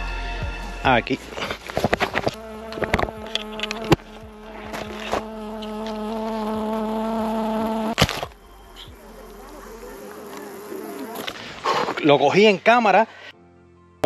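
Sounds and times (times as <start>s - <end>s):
bee buzzing: 1.2s - 12.0s
camera being bumped: 1.4s - 6.1s, 8.0s - 8.4s.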